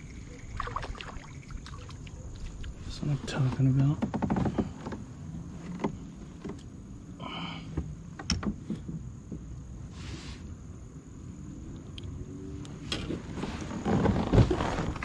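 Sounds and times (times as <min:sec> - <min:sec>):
clicks and knocks on plastic kayak: 0:03.6 - 0:06.7.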